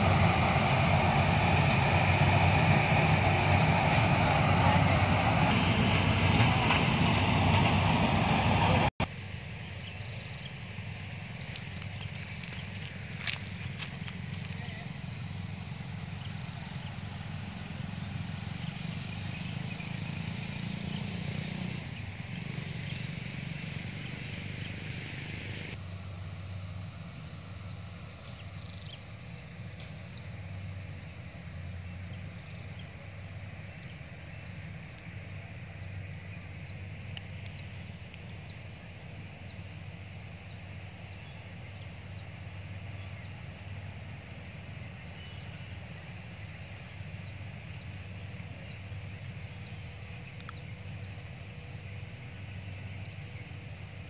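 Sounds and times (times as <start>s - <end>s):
steady low rumble: 0.0s - 21.1s
small birds chirping: 9.4s - 54.0s.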